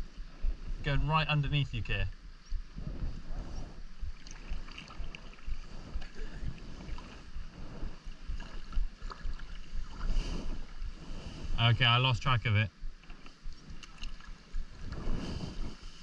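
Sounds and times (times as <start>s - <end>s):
wind rumble on microphone: 0.0s - 16.0s
water lapping against hull: 2.6s - 11.9s, 12.5s - 16.0s
kayak paddle splashing: 4.1s - 11.6s, 12.9s - 16.0s.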